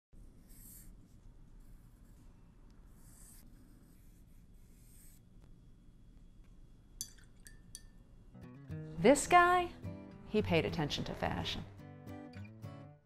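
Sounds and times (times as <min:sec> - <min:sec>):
pencil scratching on paper: 0:00.2 - 0:05.3.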